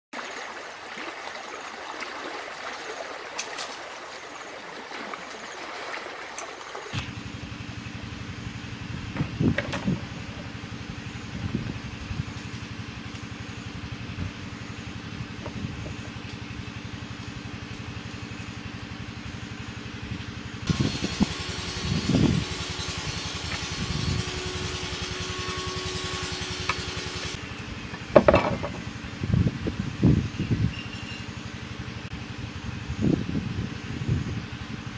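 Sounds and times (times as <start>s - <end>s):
engine humming: 6.4s - 30.2s
knocks on wooden board: 28.2s - 28.8s.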